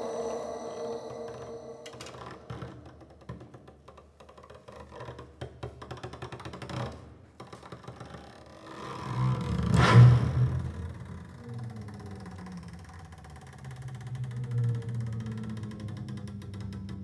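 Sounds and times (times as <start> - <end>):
low hum: 0.0 - 2.6.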